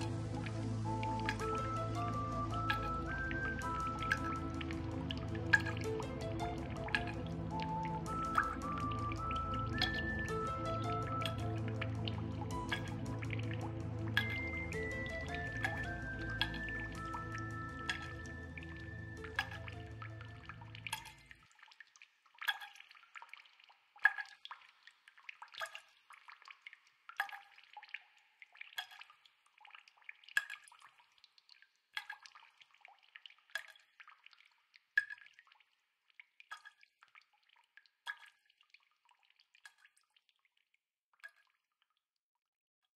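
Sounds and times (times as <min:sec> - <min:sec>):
music track: 0:00.0 - 0:21.3
water drops plinking: 0:00.0 - 0:21.4.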